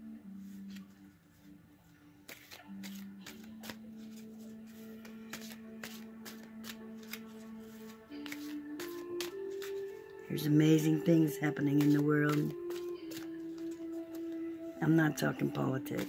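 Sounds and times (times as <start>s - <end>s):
soft background music: 0.0s - 16.0s
cards being shuffled: 2.2s - 14.4s, 15.4s - 16.0s.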